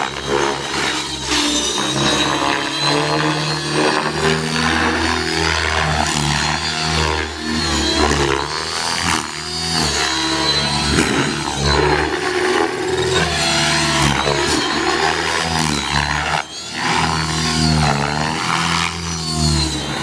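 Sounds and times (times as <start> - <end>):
high electric motor whine: 0.0 - 20.0
rc helicopter rotor whir: 0.0 - 20.0.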